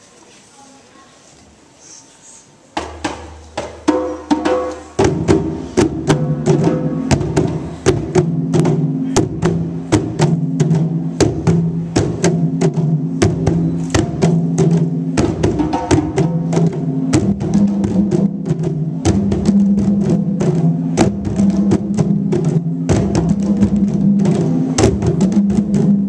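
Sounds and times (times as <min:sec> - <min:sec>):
percussion ensemble playing: 0:02.8 - 0:26.0.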